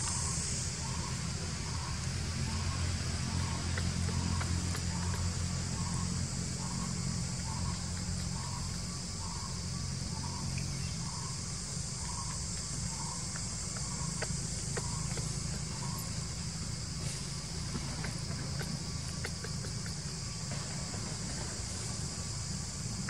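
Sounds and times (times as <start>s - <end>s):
insect shrill drone: 0.0s - 23.0s
soft repeating chirp: 12.0s - 16.1s.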